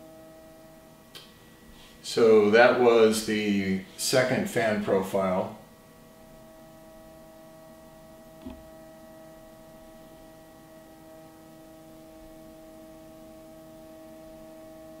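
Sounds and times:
projector cooling fan humming: 0.0s - 15.0s.

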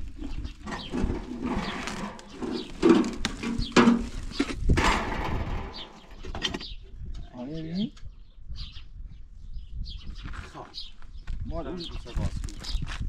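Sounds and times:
knocks and clatters: 0.6s - 6.7s.

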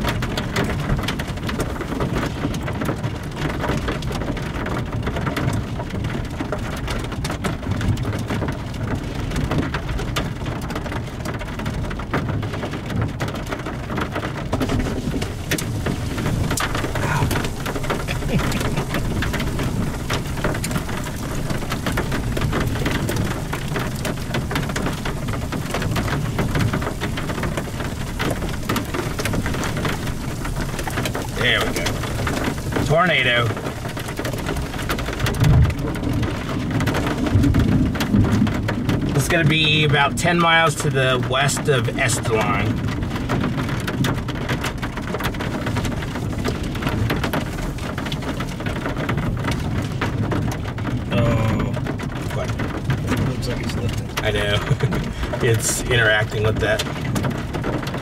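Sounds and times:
rain drops ticking: 0.0s - 58.0s
low rumble: 14.6s - 39.2s.

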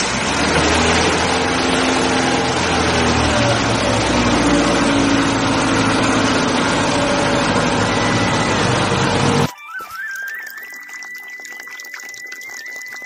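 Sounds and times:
car engine running: 0.0s - 9.5s.

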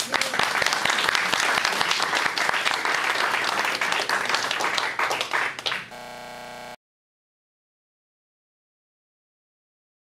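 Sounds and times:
audience applauding: 0.0s - 6.0s
steady buzzing tone: 5.9s - 6.8s.

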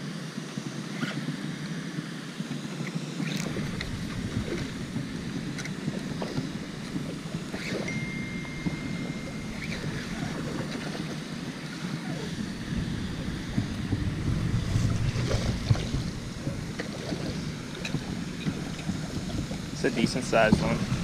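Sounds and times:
wind buffeting microphone: 3.4s - 21.0s
thin high whistle: 7.5s - 12.4s.

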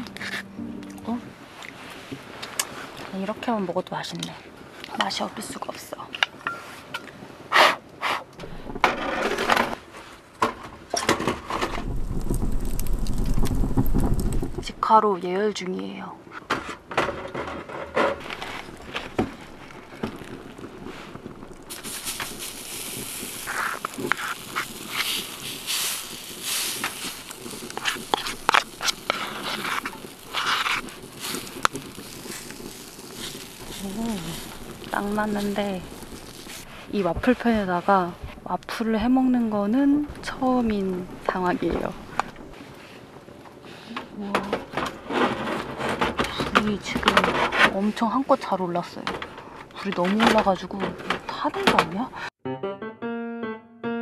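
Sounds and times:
firewood and metal clattering in stove: 5.0s - 7.1s, 8.4s - 14.7s, 16.3s - 52.2s
wood fire rumbling in stove: 8.4s - 15.0s, 16.5s - 51.5s.

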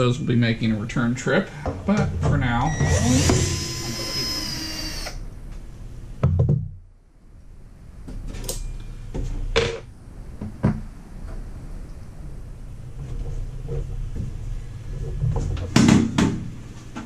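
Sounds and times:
heavy thump: 1.6s - 3.6s.

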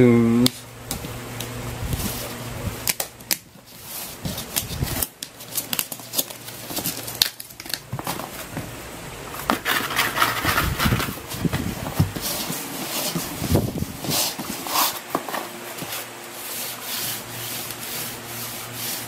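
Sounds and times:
scratchy cardboard rustle: 0.9s - 2.4s, 3.3s - 8.8s, 9.4s - 19.0s
fingernails scraping cardboard: 9.5s - 19.0s.

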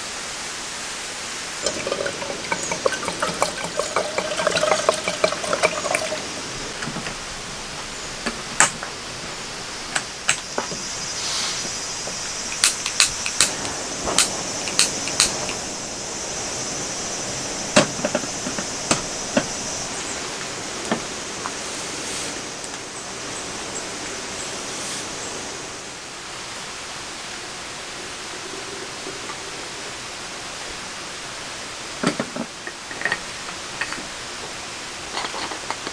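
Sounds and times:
background hiss: 0.0s - 35.9s
gas stove burner hissing: 1.5s - 26.1s.

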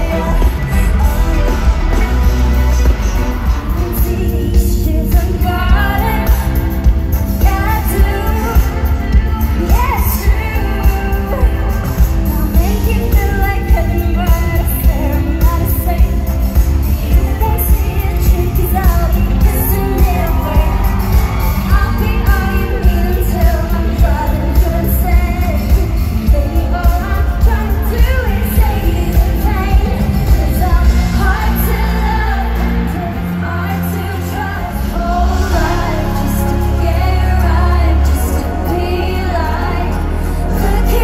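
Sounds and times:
live concert music over sound system: 0.0s - 41.0s
person singing: 0.0s - 41.0s.

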